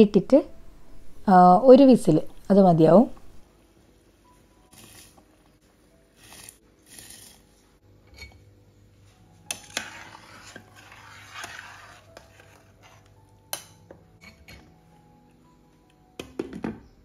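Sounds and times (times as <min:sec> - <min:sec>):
spoon stirring in metal pot: 0:09.5 - 0:14.7.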